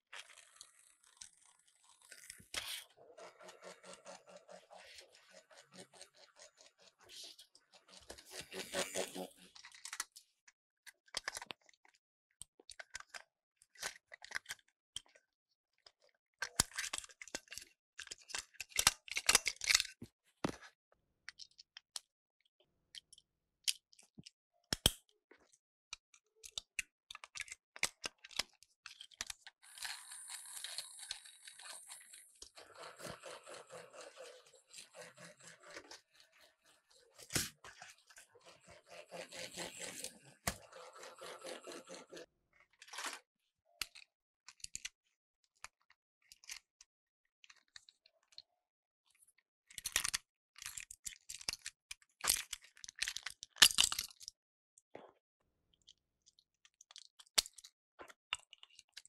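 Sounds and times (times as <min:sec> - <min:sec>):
plastic clicks and snaps: 0:24.7 - 0:25.0
plastic scraping and rattling: 0:28.3 - 0:43.2.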